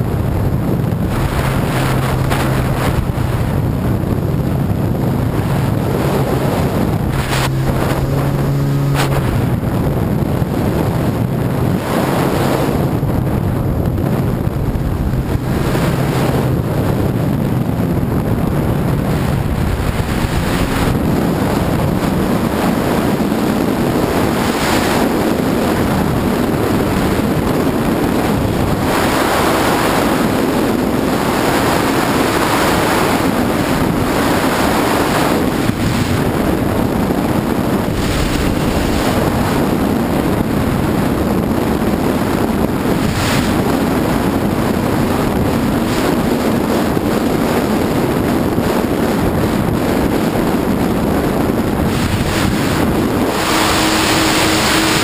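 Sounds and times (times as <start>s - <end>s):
watercraft engine drone: 0.0s - 55.0s
wind buffeting microphone: 0.0s - 55.0s
water splashing: 1.0s - 3.6s, 5.5s - 9.8s, 51.9s - 55.0s.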